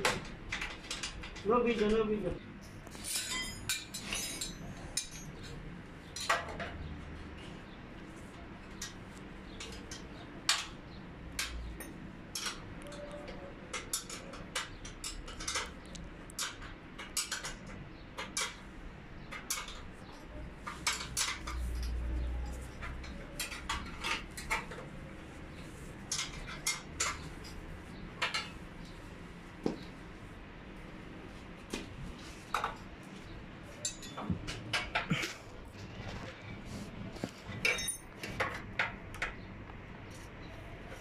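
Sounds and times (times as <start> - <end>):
metal clinks and taps: 11.4 - 13.1, 37.6 - 39.4.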